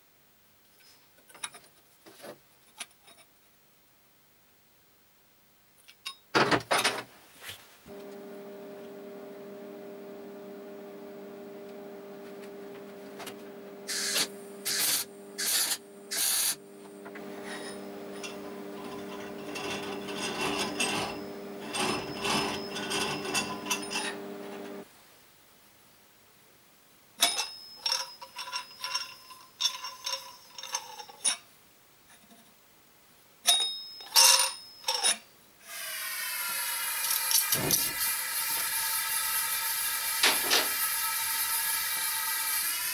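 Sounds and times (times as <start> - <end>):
steady multi-pitch hum: 7.9 - 24.8
metal parts clicking and clinking: 27.2 - 31.4
ringing metallic clinks: 27.2 - 31.4, 33.5 - 35.2.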